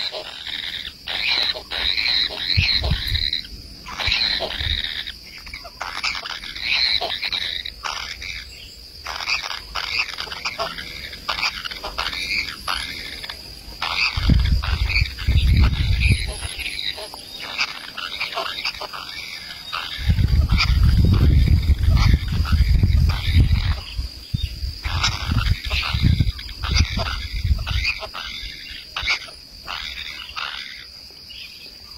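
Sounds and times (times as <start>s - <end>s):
steady high hiss: 0.0s - 31.9s
low rumbles: 13.8s - 16.7s.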